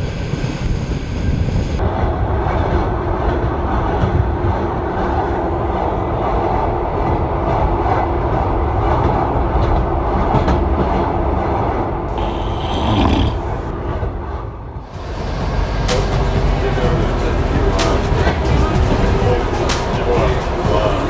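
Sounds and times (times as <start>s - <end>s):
train carriage rumbling: 0.0s - 21.0s
hissing: 12.1s - 13.7s.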